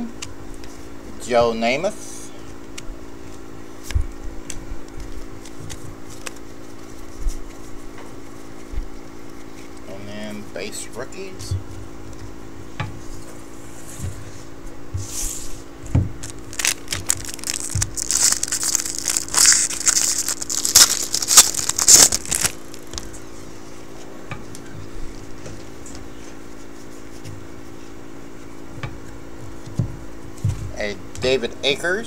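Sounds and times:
card pack wrapper crinkling and tearing: 4.5s - 6.5s, 16.2s - 23.2s.

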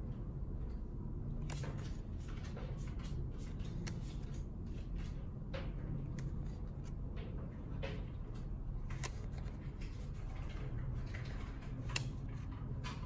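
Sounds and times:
low room rumble: 0.0s - 13.0s
cards clicking and brushing: 1.4s - 4.8s, 8.8s - 10.3s.

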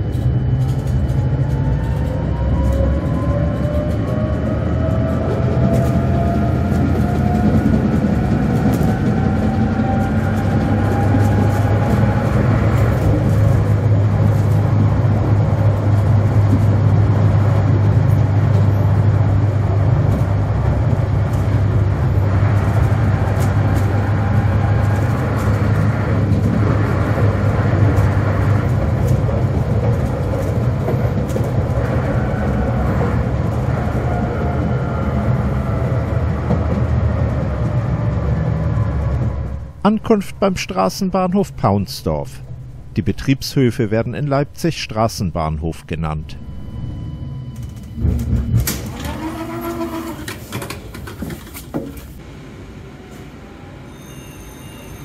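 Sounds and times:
tram running gear rumble: 0.0s - 55.0s
faint whine: 39.0s - 48.6s.

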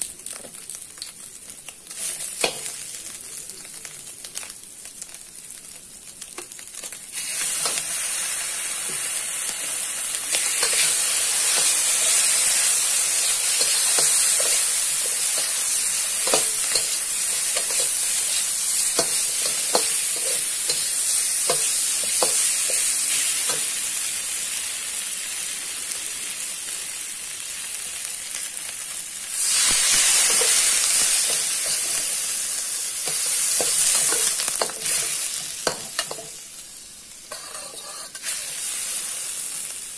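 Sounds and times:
meat sizzling in a wok: 0.0s - 39.9s
metal spatula scraping wok: 37.3s - 38.7s.

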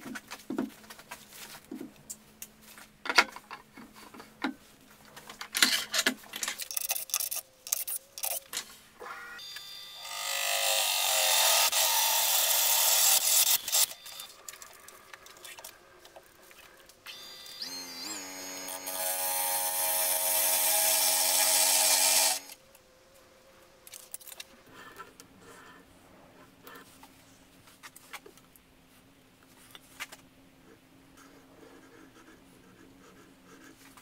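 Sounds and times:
drill whining cutting wood: 9.1s - 14.4s, 17.1s - 22.6s.

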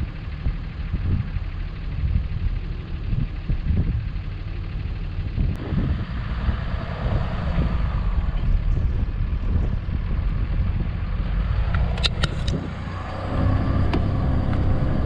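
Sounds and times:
vehicle engine and tyre rumble: 0.0s - 15.0s
sharp clicks: 11.6s - 12.6s.

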